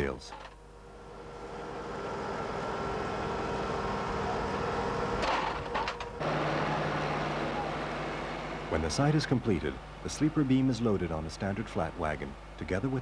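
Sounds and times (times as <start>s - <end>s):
rail machine engine hum: 0.8s - 13.0s.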